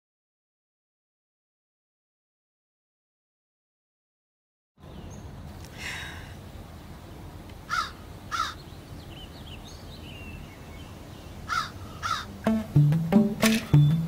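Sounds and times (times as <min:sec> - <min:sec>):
small birds chirping: 0:04.8 - 0:12.7
crow cawing: 0:07.7 - 0:08.6, 0:11.5 - 0:12.3
plucked string music: 0:12.4 - 0:14.0.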